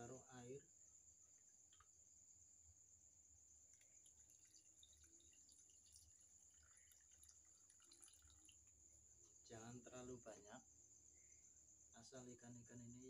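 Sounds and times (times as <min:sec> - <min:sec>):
water trickling into metal pan: 0:03.6 - 0:09.0.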